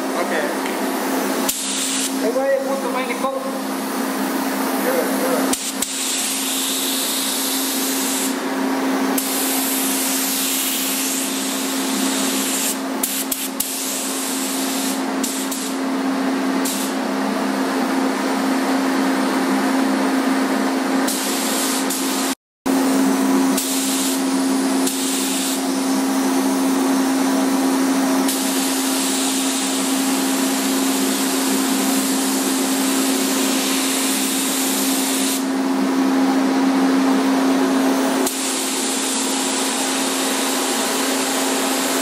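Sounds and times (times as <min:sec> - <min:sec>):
air system humming: 0:00.0 - 0:42.0
spray gun hissing: 0:01.1 - 0:02.2, 0:04.4 - 0:08.4, 0:09.2 - 0:15.8, 0:16.6 - 0:17.0, 0:21.1 - 0:22.4, 0:23.6 - 0:25.8, 0:28.3 - 0:29.9, 0:30.9 - 0:35.5, 0:38.2 - 0:42.0.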